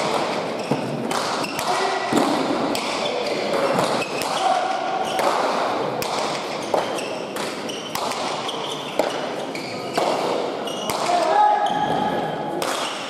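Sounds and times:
shoes squeaking on floor: 0.3s - 1.7s, 3.0s - 5.2s, 6.3s - 12.1s.

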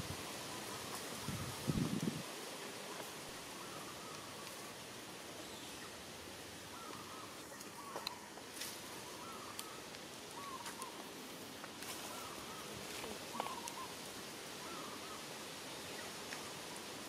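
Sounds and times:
steady outdoor hiss: 0.0s - 17.0s
faint clicks: 6.9s - 8.7s.

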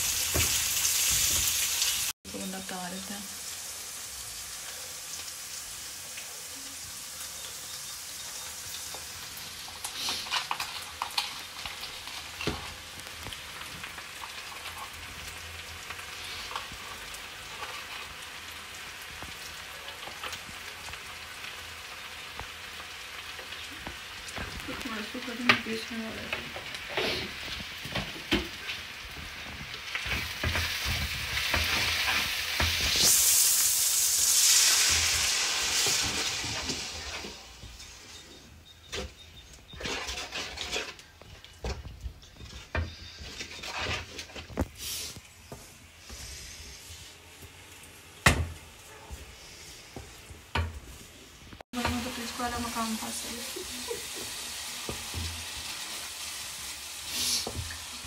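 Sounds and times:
vegetables sizzling in oil: 0.0s - 58.0s
wooden spatula scraping pan: 39.7s - 45.2s.

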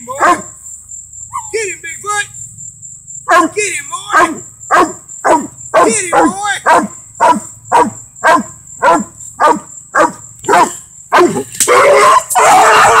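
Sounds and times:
dog barking: 0.1s - 0.6s, 3.3s - 13.0s.

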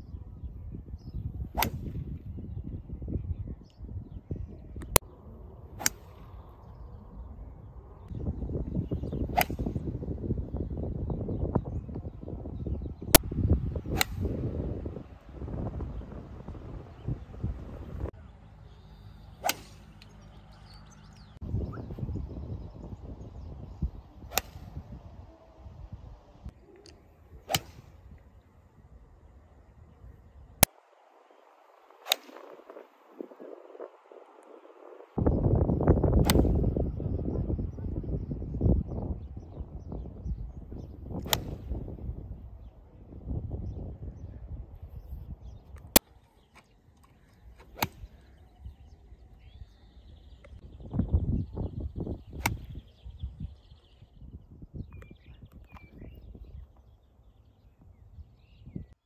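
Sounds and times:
golf club striking ball: 19.4s - 20.2s, 47.6s - 48.2s.

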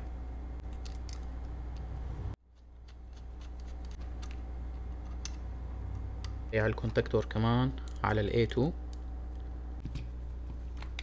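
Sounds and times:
small electrical parts clicking: 0.0s - 1.9s
steady low hum: 0.0s - 11.0s.

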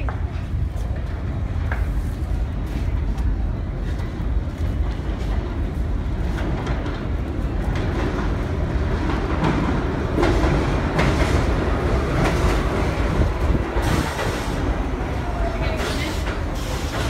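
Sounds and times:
subway train rumble: 0.0s - 17.0s.

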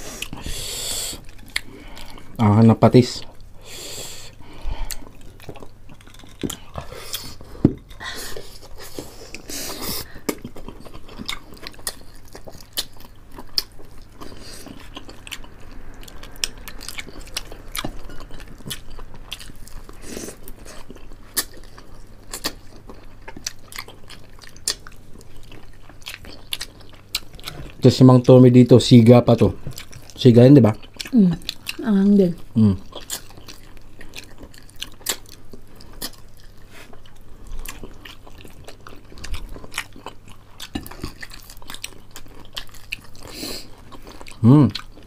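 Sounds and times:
people chewing crispy food: 0.0s - 45.0s
fried skin crunching: 4.9s - 7.4s.

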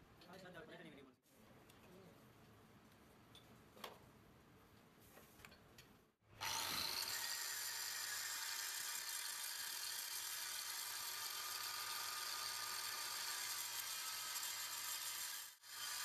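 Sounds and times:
angle grinder grinding metal: 6.4s - 16.0s.

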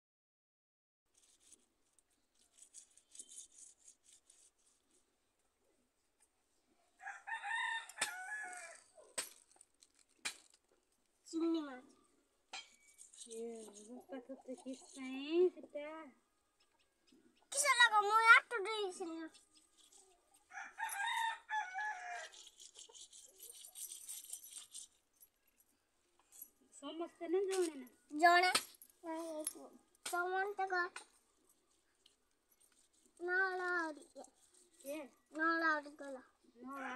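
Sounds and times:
fish scraped on stone: 2.3s - 4.8s, 22.2s - 25.0s
rooster crowing: 7.0s - 8.9s, 20.5s - 22.4s.

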